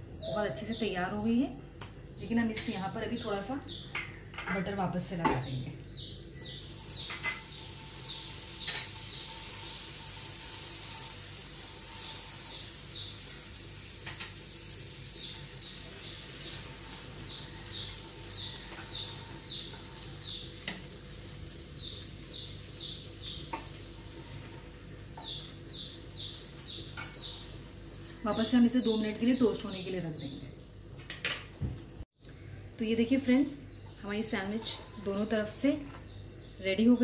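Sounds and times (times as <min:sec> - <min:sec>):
bird chirping: 0:00.1 - 0:01.4, 0:11.9 - 0:13.4, 0:15.1 - 0:20.6, 0:21.8 - 0:23.6, 0:25.2 - 0:27.6, 0:28.2 - 0:30.5
butter sizzling in a pan: 0:06.1 - 0:32.0.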